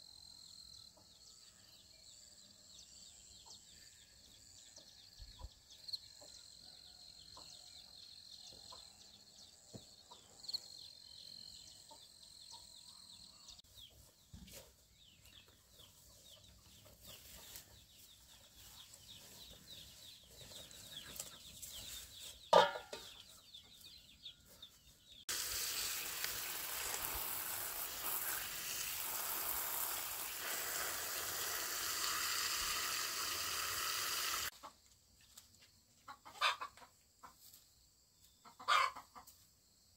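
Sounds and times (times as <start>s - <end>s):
water gushing from hose: 25.3s - 34.5s.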